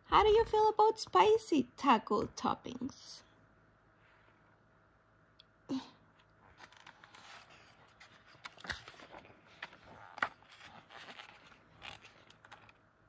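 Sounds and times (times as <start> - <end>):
paper pages turning: 6.5 - 12.8.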